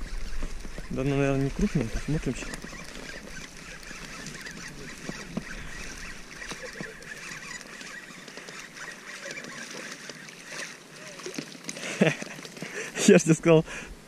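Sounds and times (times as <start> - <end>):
small knocks from tackle and boat: 2.4 - 12.7
fish splashing at surface: 2.6 - 12.8.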